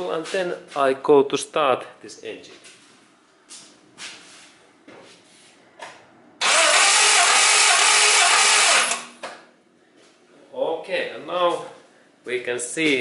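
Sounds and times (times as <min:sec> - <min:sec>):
engine cranking on starter motor: 0:06.4 - 0:09.2.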